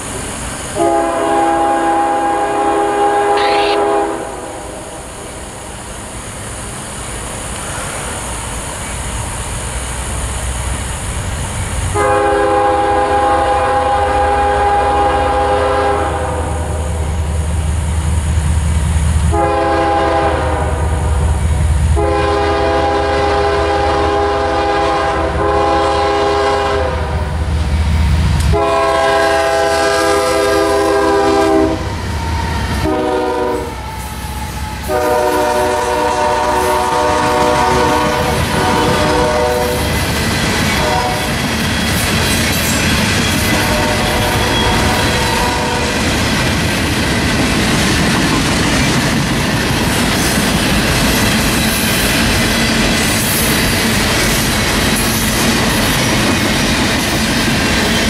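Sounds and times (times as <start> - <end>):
locomotive engines rumbling: 0.0 - 58.0
train air horn blasts: 0.8 - 5.0, 11.9 - 17.0, 19.3 - 21.2, 21.9 - 27.3, 28.4 - 40.0, 40.7 - 41.5, 43.3 - 46.0.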